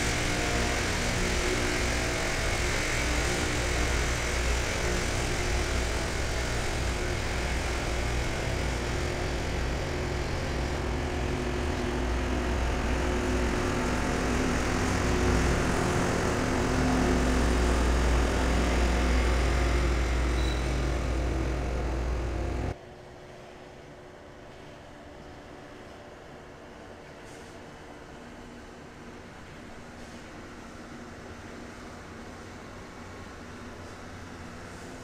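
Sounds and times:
diesel engines droning: 0.0s - 22.8s
train wheels on rails: 0.0s - 22.8s.

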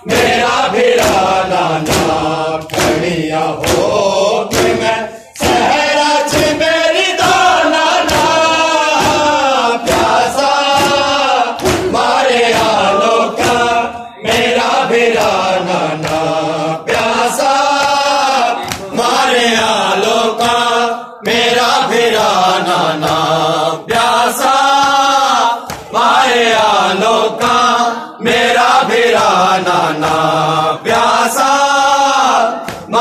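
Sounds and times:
men chanting in unison: 0.0s - 33.0s
hands beating chests: 0.1s - 19.7s, 24.7s - 26.7s.

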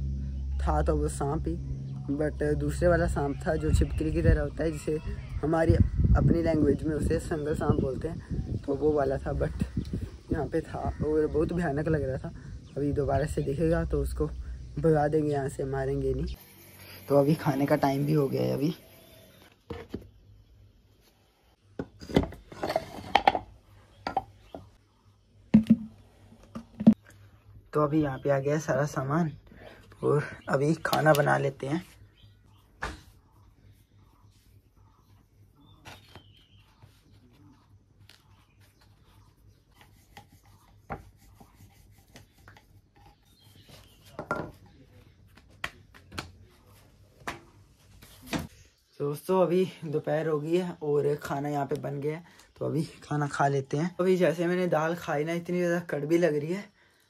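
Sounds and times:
rolling pin knocking on wooden board: 25.5s - 25.9s
dough patted and rolled: 43.6s - 48.5s.

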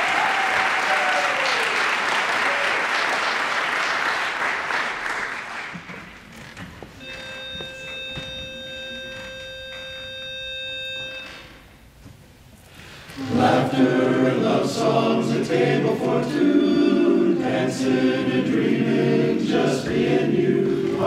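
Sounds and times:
audience applause: 0.0s - 6.5s
pitch pipe steady note: 7.0s - 11.7s.

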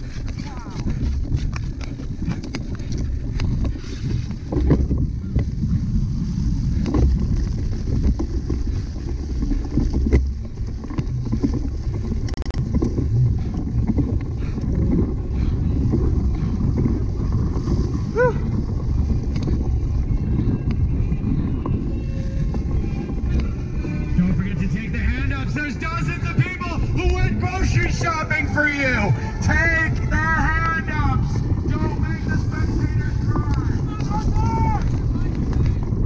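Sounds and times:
bike rumbling over rough ground: 0.0s - 36.0s
wind buffeting microphone: 0.0s - 36.0s
knocks and clicks from bike: 0.2s - 5.6s.

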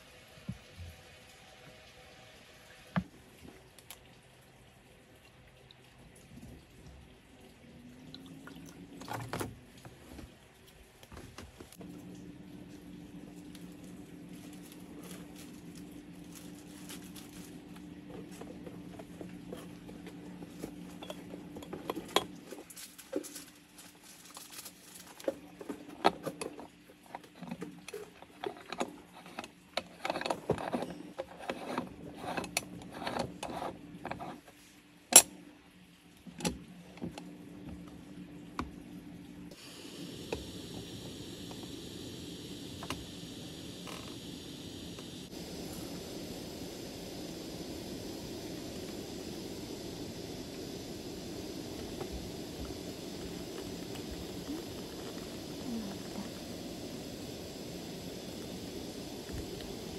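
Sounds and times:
hum and hiss: 6.3s - 59.9s
steady low hum: 35.1s - 59.9s.

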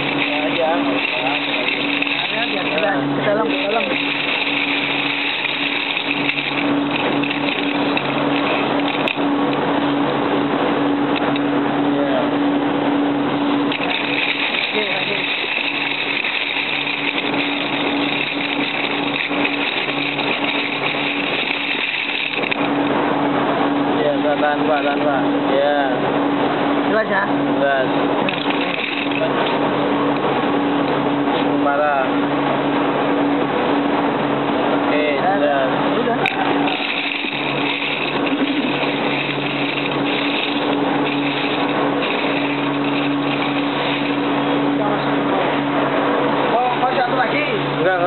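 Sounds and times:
low hum: 0.0s - 47.8s
machinery running: 0.0s - 48.0s.

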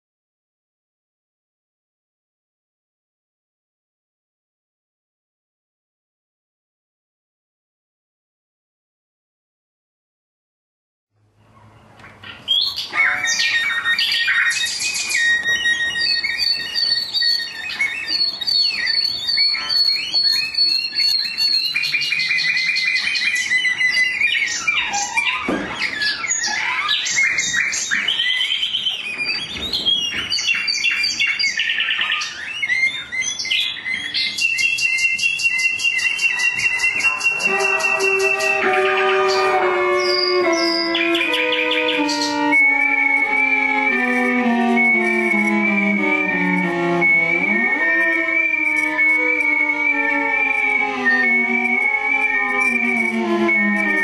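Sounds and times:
cello bowed in high squeaks: 13.0s - 27.2s, 36.6s - 54.0s.

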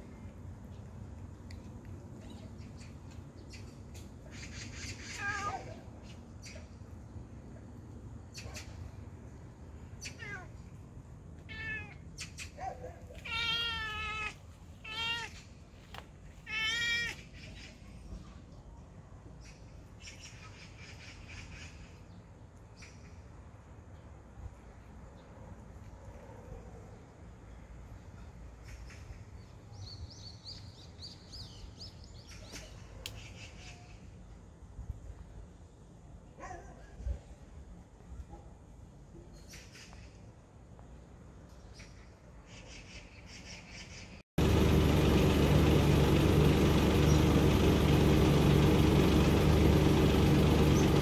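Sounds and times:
low outdoor hum: 0.0s - 51.0s
cat meowing: 11.5s - 12.0s, 13.2s - 15.4s, 16.4s - 17.2s
small bird chirping: 45.4s - 50.0s.

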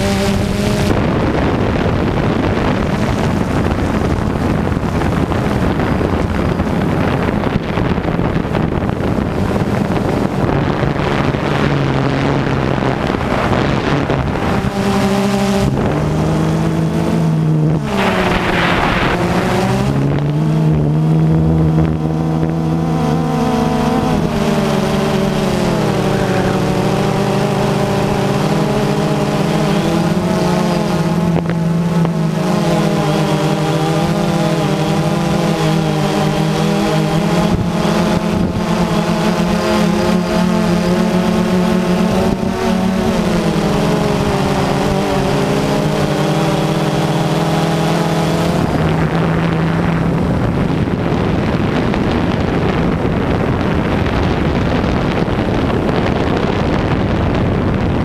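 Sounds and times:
drone motors whirring: 0.0s - 57.0s
wind noise on microphone: 0.0s - 58.0s.

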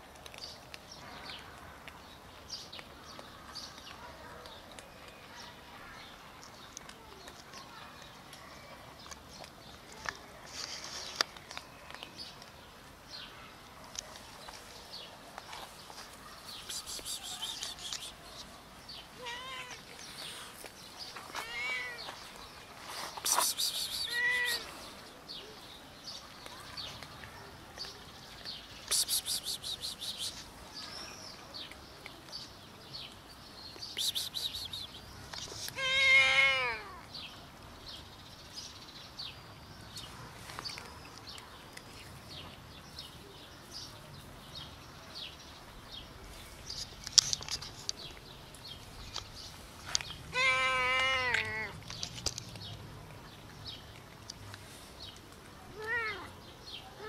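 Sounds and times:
cats meowing: 19.1s - 20.0s, 21.2s - 22.3s, 23.9s - 24.8s, 35.6s - 37.1s, 50.3s - 51.8s, 55.7s - 56.4s.

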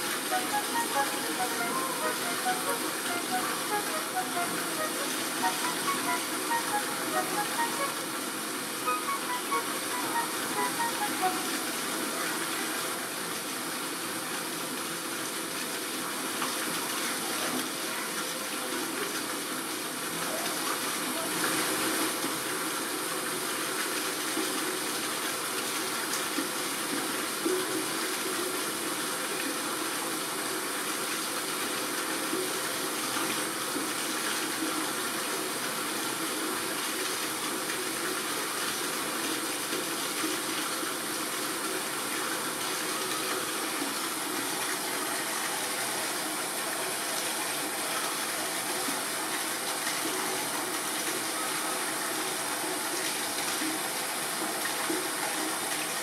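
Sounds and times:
running water rushing: 0.0s - 56.0s.

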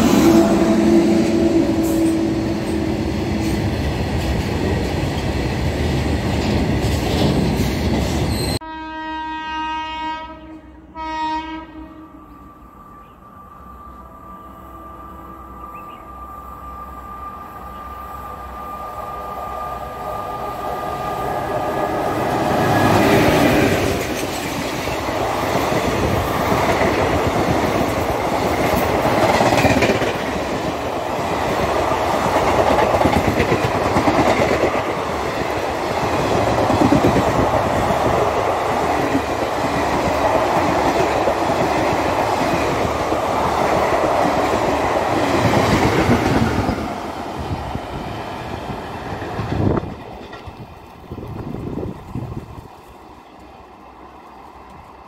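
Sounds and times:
train wheels on rails: 0.0s - 8.6s, 15.5s - 55.0s
clickety-clack over rail joints: 1.2s - 8.4s, 22.9s - 53.6s.

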